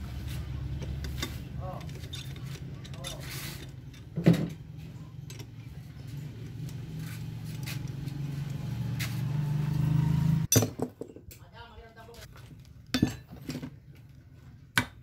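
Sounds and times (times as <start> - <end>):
low mechanical hum: 0.0 - 10.5.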